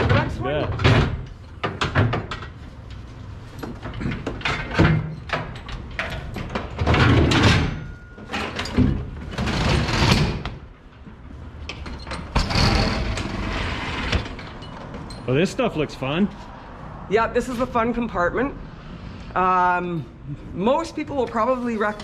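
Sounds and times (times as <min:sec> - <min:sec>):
compartment door clunks and rattles: 0:03.6 - 0:10.6
door sliding rush: 0:12.2 - 0:14.6.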